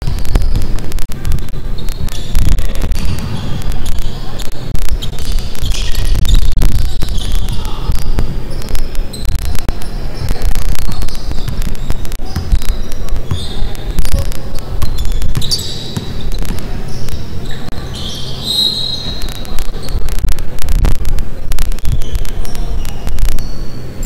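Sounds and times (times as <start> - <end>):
basketball bouncing on wooden floor: 0.0 - 4.1
sneakers squeaking: 0.0 - 20.3, 21.7 - 24.0.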